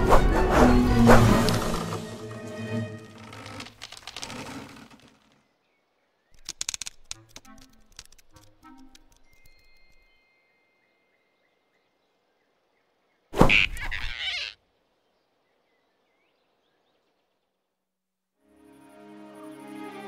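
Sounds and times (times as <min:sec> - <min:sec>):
cartoon whoosh-and-grab effect: 0:00.0 - 0:02.0, 0:13.4 - 0:14.5
faint forest ambience: 0:00.9 - 0:20.0
soft bird chirps: 0:09.0 - 0:17.6.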